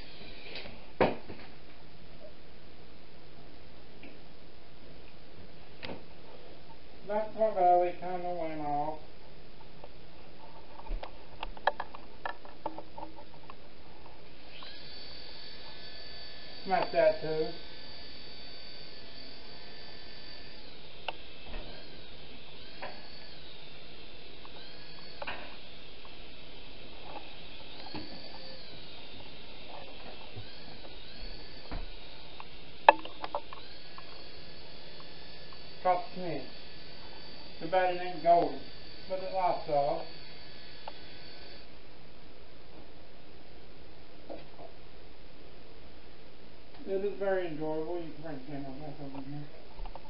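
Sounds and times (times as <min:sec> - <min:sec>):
small motor and propeller whine: 0:14.4 - 0:41.8.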